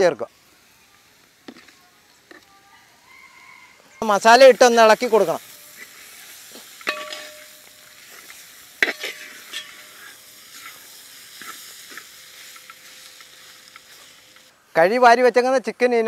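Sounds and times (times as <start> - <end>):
sizzling in a pot: 0.0 - 15.4
ladle scraping: 5.6 - 14.5
ladle clanking against metal pot: 6.8 - 7.5.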